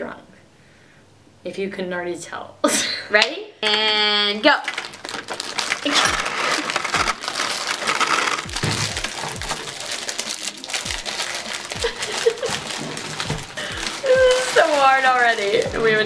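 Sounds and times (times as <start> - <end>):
plastic wrapping crinkling: 3.7 - 16.0
cardboard packaging rustling: 4.4 - 16.0.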